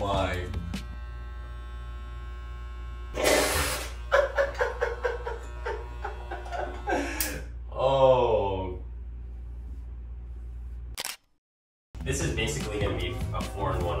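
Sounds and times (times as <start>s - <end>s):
electric hair clippers buzzing: 0.0s - 7.5s.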